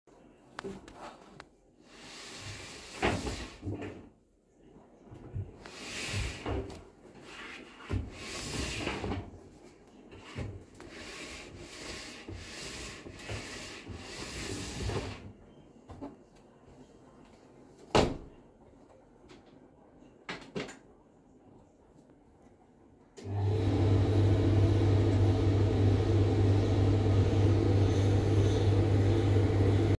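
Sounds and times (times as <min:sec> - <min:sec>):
tumble dryer humming: 0:23.2 - 0:30.0.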